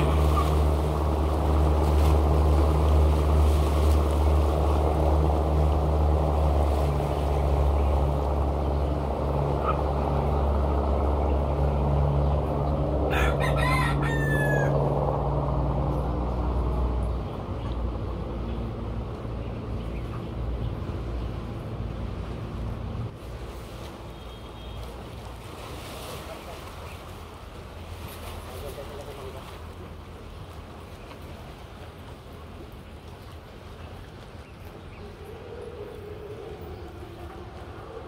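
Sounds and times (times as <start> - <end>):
boat engine droning: 0.0 - 38.0
rooster crowing: 13.1 - 15.0.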